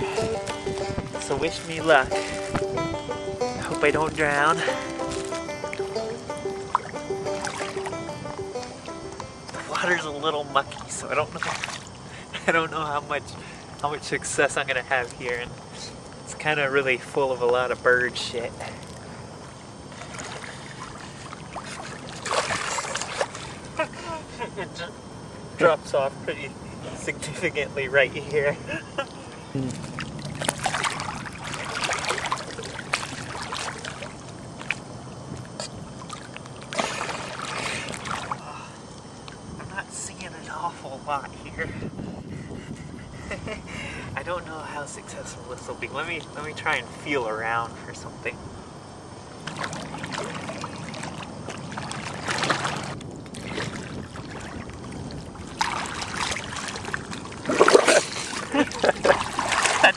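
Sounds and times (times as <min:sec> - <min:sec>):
water splashing and sloshing: 0:00.0 - 0:15.4, 0:18.6 - 0:24.0, 0:28.2 - 0:39.5, 0:49.3 - 0:59.9.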